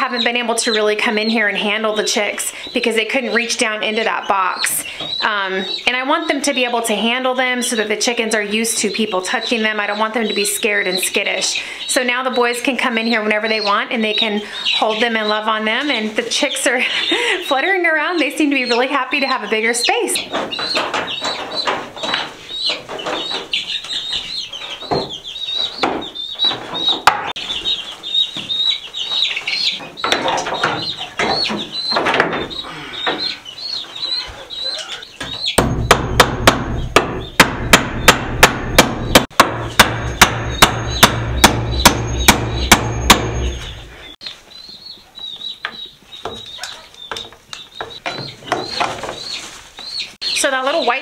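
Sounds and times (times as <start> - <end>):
baby chicks peeping: 0.0 - 51.0
hammer striking wood: 27.0 - 27.4, 35.6 - 43.6.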